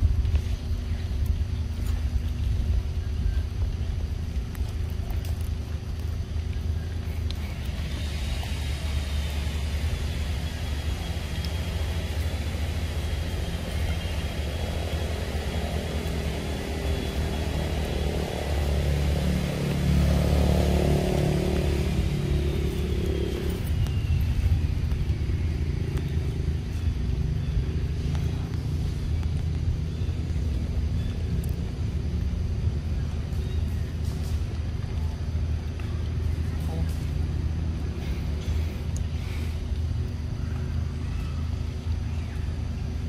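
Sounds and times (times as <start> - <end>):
engine rumble: 0.0 - 43.0
high whine sliding down: 7.3 - 26.4.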